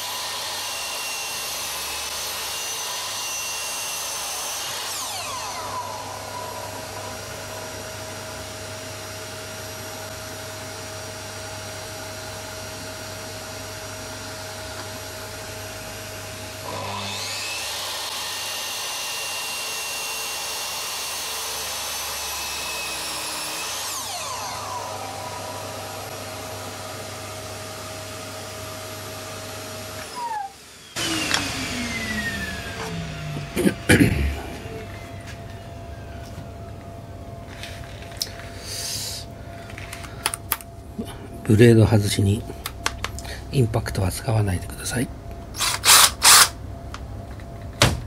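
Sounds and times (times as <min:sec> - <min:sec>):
saw cutting wood: 0:00.0 - 0:10.1, 0:15.8 - 0:35.3, 0:45.6 - 0:46.6
miter saw motor whine: 0:00.0 - 0:39.2
steady machine drone: 0:30.9 - 0:47.7.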